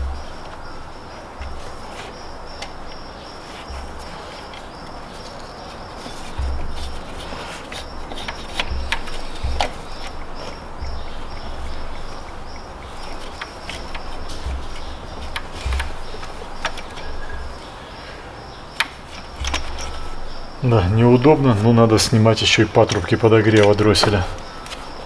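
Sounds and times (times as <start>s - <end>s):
metallic clicks and knocks: 0.0s - 5.5s, 6.1s - 17.6s, 18.7s - 20.6s, 22.8s - 25.0s
steady hiss: 0.0s - 25.0s
dull low thumps: 6.3s - 7.2s, 7.8s - 17.6s.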